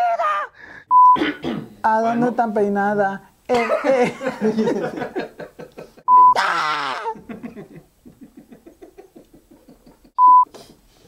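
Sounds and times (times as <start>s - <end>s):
man's outburst: 0.0s - 0.6s, 6.3s - 7.2s
censor bleep: 0.9s - 1.2s, 6.1s - 6.4s, 10.2s - 10.5s
men laughing: 3.5s - 10.2s.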